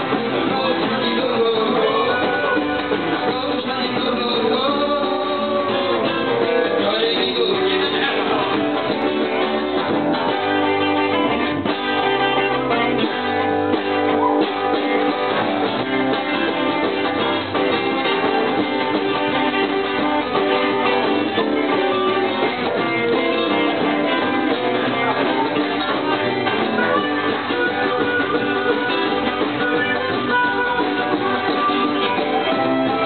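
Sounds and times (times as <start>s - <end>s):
person singing: 0.0s - 9.7s, 18.7s - 33.0s
live band playing dance music: 0.0s - 33.0s.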